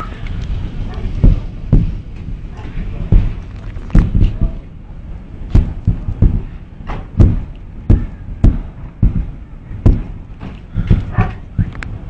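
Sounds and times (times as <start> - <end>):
low rumble: 0.0 - 12.0
sharp bangs and thuds: 1.2 - 2.4, 3.0 - 4.6, 5.5 - 11.7.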